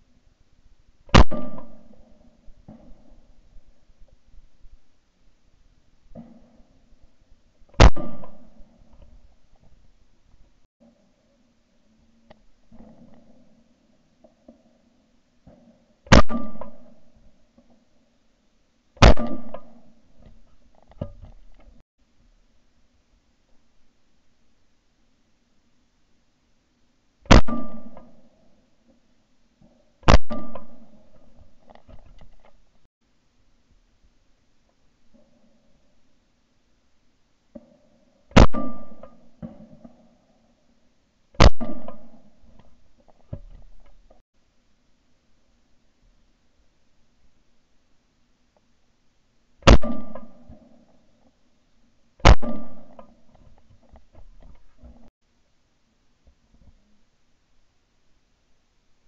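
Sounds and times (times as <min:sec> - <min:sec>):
shotgun shots: 0:01.1 - 0:02.0, 0:07.8 - 0:08.6, 0:16.1 - 0:16.9, 0:19.0 - 0:19.8, 0:27.3 - 0:28.2, 0:30.1 - 0:30.8, 0:38.4 - 0:39.1, 0:41.4 - 0:42.2, 0:49.6 - 0:50.4, 0:52.2 - 0:53.0.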